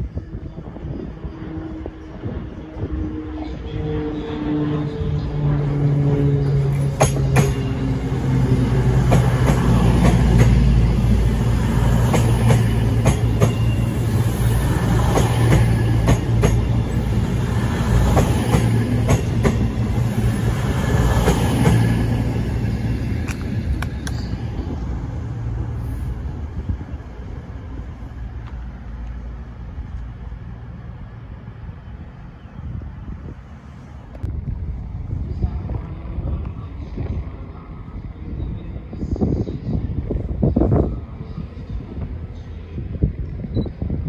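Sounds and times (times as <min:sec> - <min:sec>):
diesel train engine drone: 0:00.0 - 0:44.0
train wheels clicking on rail joints: 0:06.5 - 0:08.0, 0:08.6 - 0:20.1.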